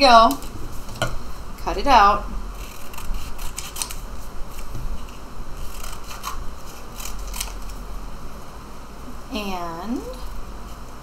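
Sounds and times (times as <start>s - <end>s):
scissors snipping paper plate: 2.6s - 4.0s, 5.7s - 7.6s.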